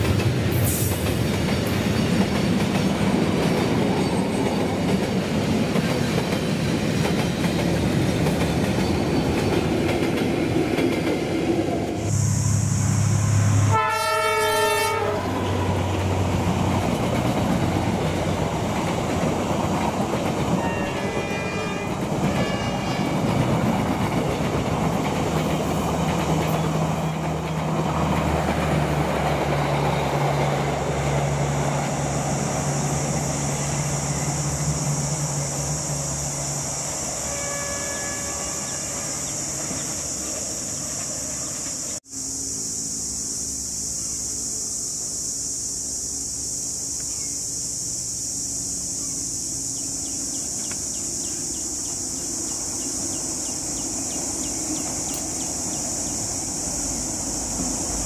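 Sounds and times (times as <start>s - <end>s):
train wheels clattering: 0.0s - 12.1s, 15.4s - 32.1s
train engine drone: 0.0s - 58.0s
locomotive horn blast: 12.5s - 15.8s, 20.5s - 23.5s, 37.1s - 39.3s.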